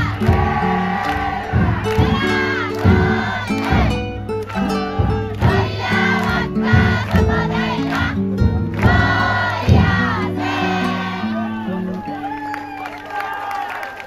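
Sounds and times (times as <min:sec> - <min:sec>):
drum strikes: 0:00.0 - 0:11.3
crowd singing in unison: 0:00.0 - 0:11.7.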